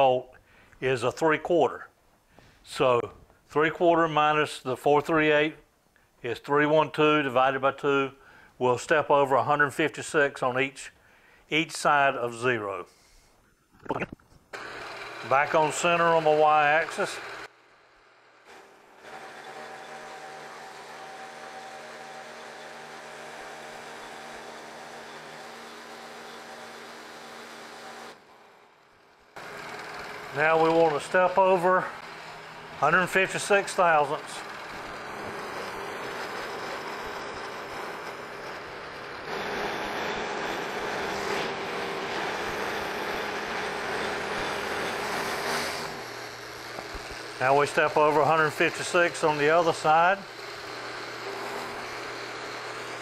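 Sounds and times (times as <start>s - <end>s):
machine hum: 14.5s - 15.9s, 16.7s - 48.7s
milling machine cutting metal: 14.6s - 17.5s, 18.4s - 28.2s, 29.4s - 53.0s.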